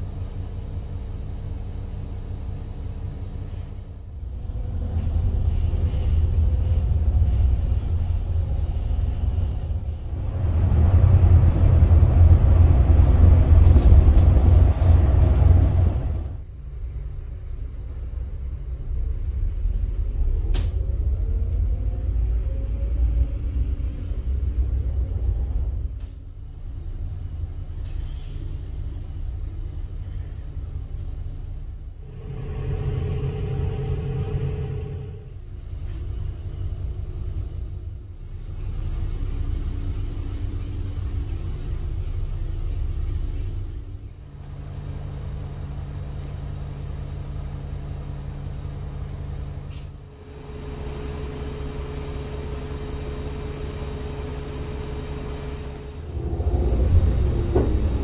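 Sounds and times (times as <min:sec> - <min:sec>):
bus diesel engine rumble: 0:00.0 - 0:58.0
higher hum: 0:32.0 - 0:35.6.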